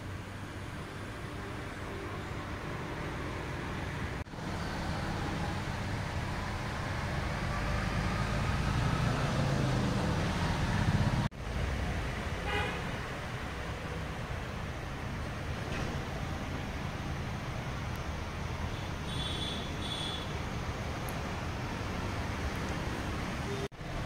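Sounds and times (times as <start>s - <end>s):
vehicle engine rumble: 0.0s - 24.0s
car horn toot: 18.7s - 20.3s.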